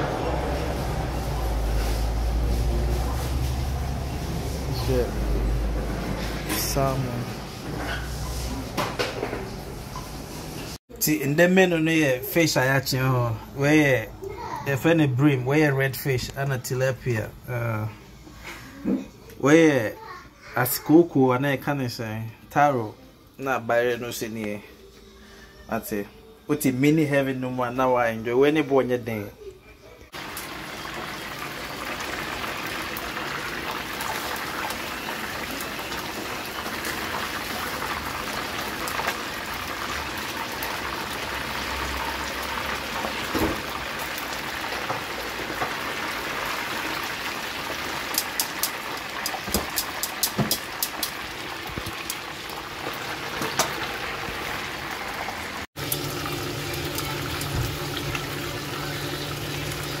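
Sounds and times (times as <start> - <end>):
hot oil sizzling: 0.0 - 10.8, 30.1 - 60.0
tongs clicking against pan: 48.1 - 51.2.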